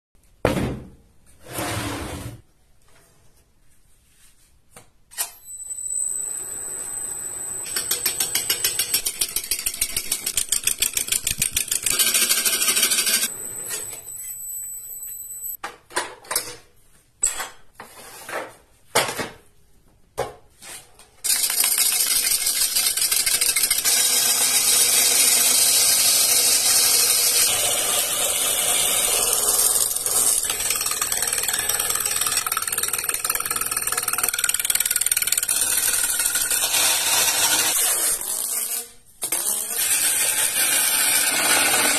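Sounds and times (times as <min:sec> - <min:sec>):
wood lathe cutting: 0:07.1 - 0:13.3, 0:21.3 - 0:38.2, 0:39.8 - 0:41.9.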